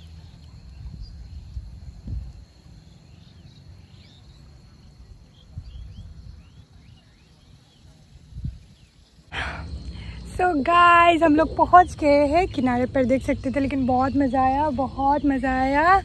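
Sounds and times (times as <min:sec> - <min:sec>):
birds chirping: 0:02.9 - 0:16.0
high insect drone: 0:06.4 - 0:16.0.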